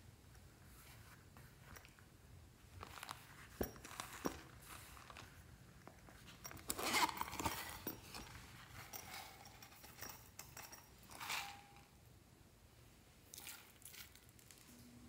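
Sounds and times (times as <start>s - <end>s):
silicone pouch zipper opening: 6.5s - 8.3s.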